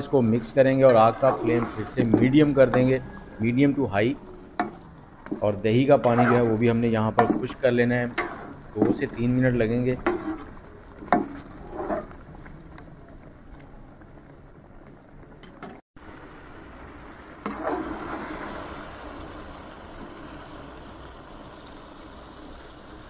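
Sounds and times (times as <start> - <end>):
curry bubbling and sizzling: 0.0 - 23.0.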